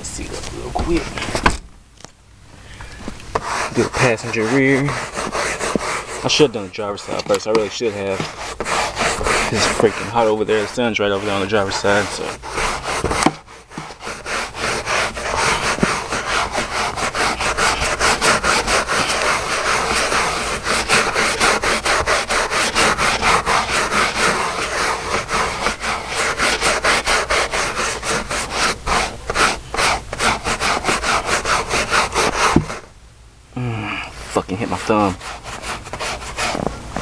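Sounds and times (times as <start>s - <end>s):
brush scrubbing carpet: 3.3s - 32.9s, 34.1s - 37.0s.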